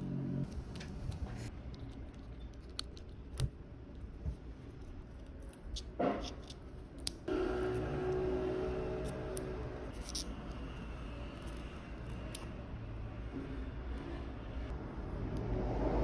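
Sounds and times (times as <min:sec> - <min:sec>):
small plastic and metal clicks: 0:00.4 - 0:04.0, 0:05.1 - 0:07.3.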